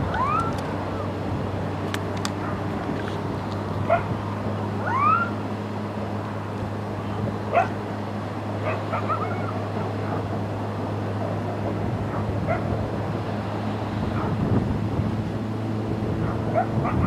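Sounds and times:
low hum with rushing noise: 0.0s - 17.0s
dog barking and yipping: 3.9s - 4.1s, 7.5s - 7.8s, 8.6s - 10.3s, 16.2s - 17.0s.

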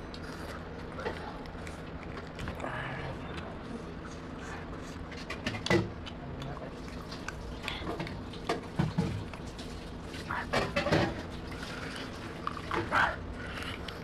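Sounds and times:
wet chewing and lip smacks: 0.1s - 14.0s.

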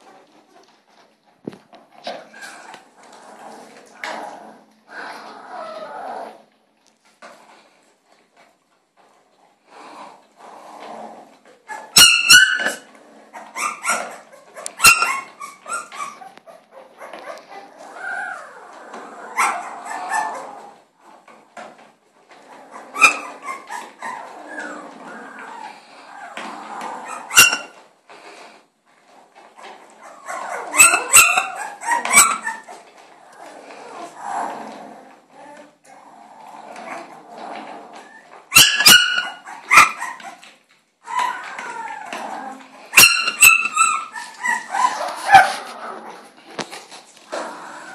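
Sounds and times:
puppy yelping: 11.6s - 20.8s, 22.6s - 27.8s, 29.6s - 34.5s, 37.9s - 46.4s.

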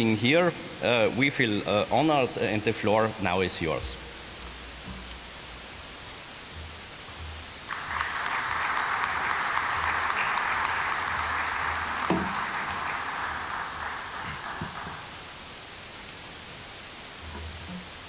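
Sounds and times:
audience applauding: 7.6s - 15.7s.

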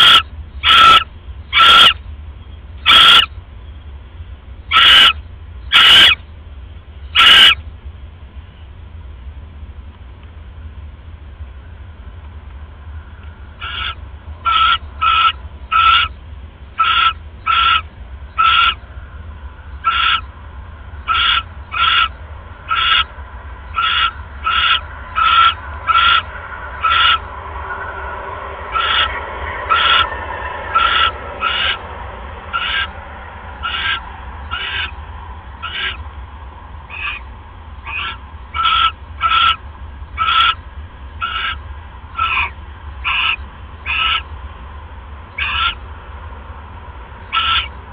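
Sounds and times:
owl raspy hissing calls: 0.0s - 2.0s, 2.8s - 3.3s, 4.7s - 6.2s, 7.1s - 7.6s, 13.6s - 16.2s, 16.8s - 18.8s, 19.8s - 20.3s, 21.0s - 27.3s, 28.7s - 33.0s, 33.6s - 35.0s, 35.6s - 36.0s, 36.9s - 40.6s, 41.2s - 41.6s, 42.2s - 44.4s, 45.4s - 45.8s, 47.3s - 47.8s
steady low hum: 0.0s - 47.9s.

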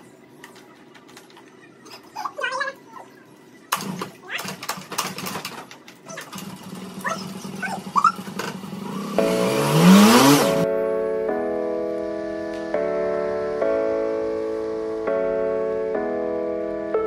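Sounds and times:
background music with sustained chords: 8.8s - 17.0s.

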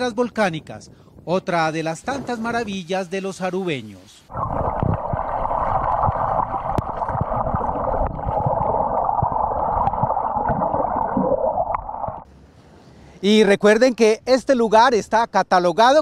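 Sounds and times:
underwater sea rush with bubbling: 4.3s - 12.3s
low underwater knocks: 4.4s - 12.3s.

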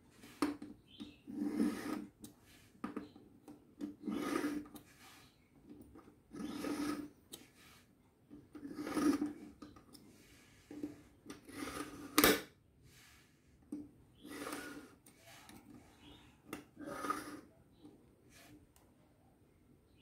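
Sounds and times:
knife scraping through sharpener: 16.8s - 17.5s.

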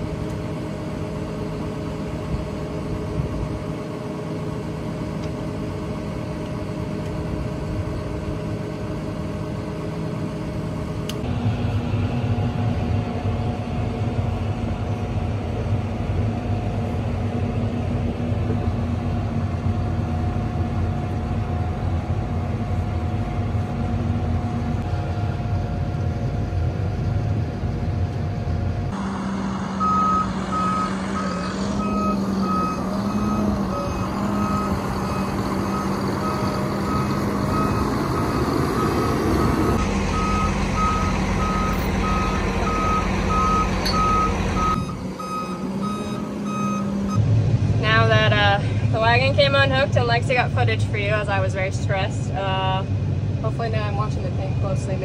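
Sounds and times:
tractor diesel engine running: 0.0s - 55.0s
reversing alarm beeping: 29.0s - 47.3s.

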